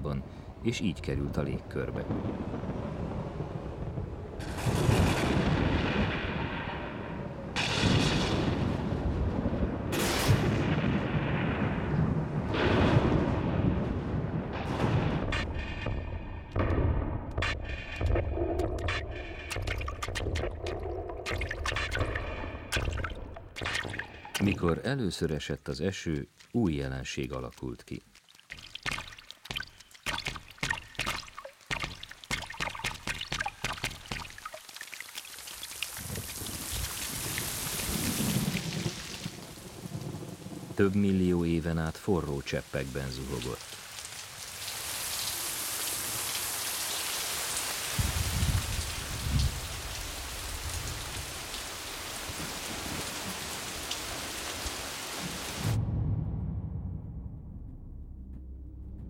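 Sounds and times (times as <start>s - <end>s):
large water drops splashing: 14.5s - 40.1s
heavy rain on rock: 26.1s - 55.8s
low rumble: 55.6s - 59.0s.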